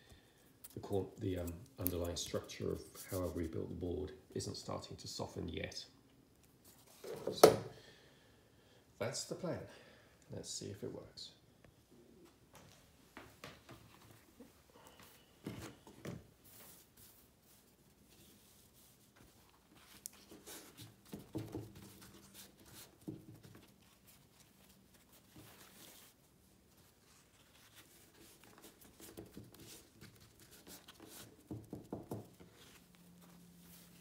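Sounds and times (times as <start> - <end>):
paper towel rustling and patting: 13.4 - 34.0.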